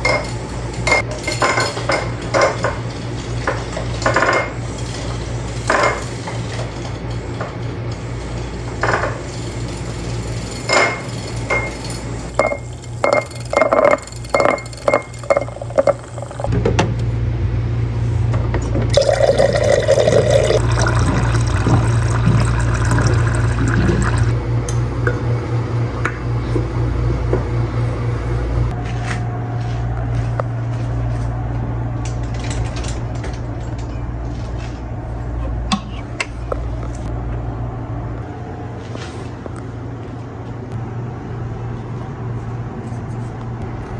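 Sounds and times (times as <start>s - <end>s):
utensil clinking against glass: 10.6s - 16.5s
water pouring into glass: 18.9s - 24.3s.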